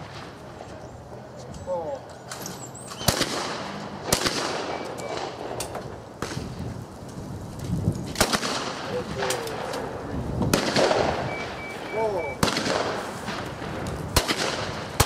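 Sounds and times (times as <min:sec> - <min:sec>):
shotgun shots with echo: 0:02.9 - 0:05.6, 0:08.2 - 0:09.8, 0:10.5 - 0:15.0.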